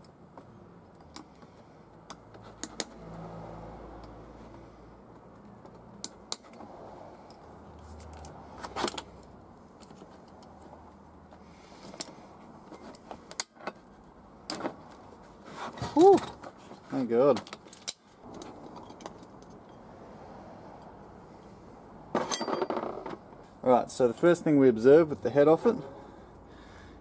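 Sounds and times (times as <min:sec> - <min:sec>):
metallic clicks of hand tools: 0:05.4 - 0:10.6, 0:17.4 - 0:19.8.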